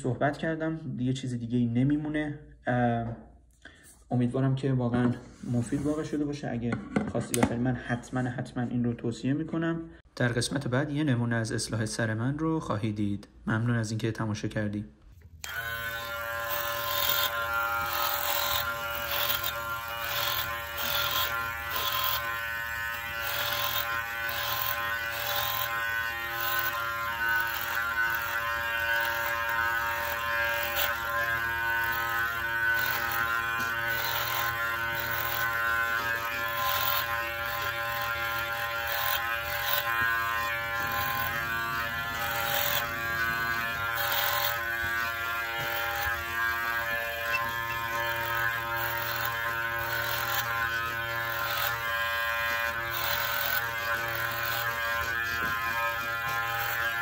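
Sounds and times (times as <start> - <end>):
hair clipper buzzing: 15.3 - 57.0
rasp of cutting hair: 15.4 - 57.0.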